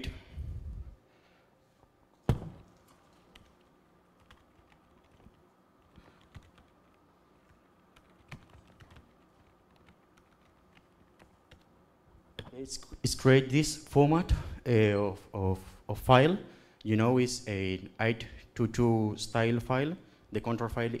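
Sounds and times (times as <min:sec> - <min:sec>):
laptop keyboard typing: 0:02.7 - 0:11.7.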